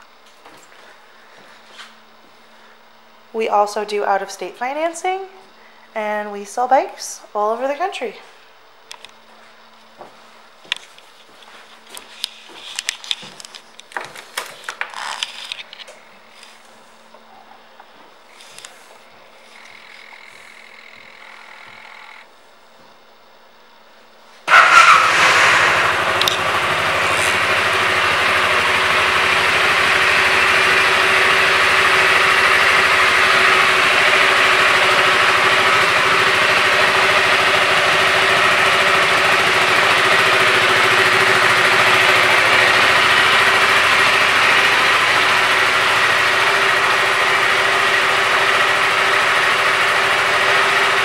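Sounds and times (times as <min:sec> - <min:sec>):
scooter engine idling: 0:19.4 - 0:22.3, 0:24.5 - 0:51.0.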